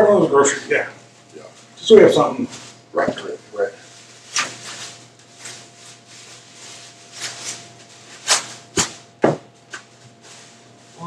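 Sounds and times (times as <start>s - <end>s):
plastic bag rustling: 1.6s - 11.0s
plastic bag crackles and knocks: 4.2s - 10.4s.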